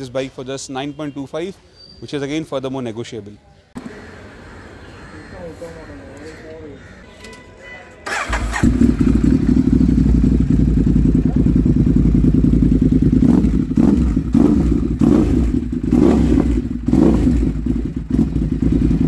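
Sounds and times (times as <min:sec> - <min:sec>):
motorcycle engine idling: 0:08.1 - 0:19.0
motorcycle throttle blips: 0:08.1 - 0:19.0.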